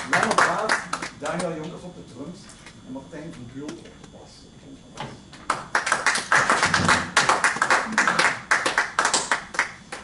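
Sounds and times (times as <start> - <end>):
small audience applauding: 0.0 - 1.2, 5.5 - 10.0.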